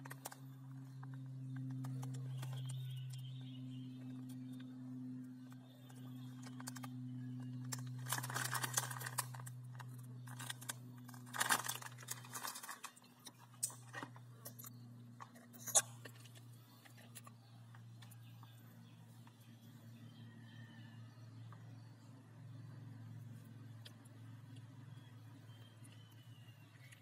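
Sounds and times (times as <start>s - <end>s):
steady low hum: 0.0s - 27.0s
plastic bag crinkling: 7.9s - 9.5s, 10.3s - 13.0s.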